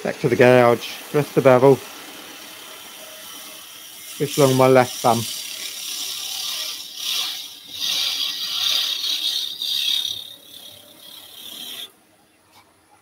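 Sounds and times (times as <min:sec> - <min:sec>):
lathe gouge cutting wood: 0:00.3 - 0:11.9.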